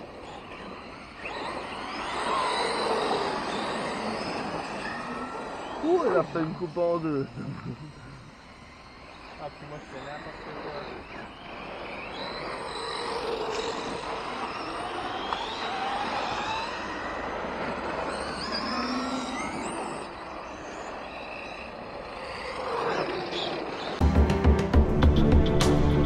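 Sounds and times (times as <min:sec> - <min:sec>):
electric motors whining: 0:00.0 - 0:24.0
loud music: 0:24.0 - 0:26.0.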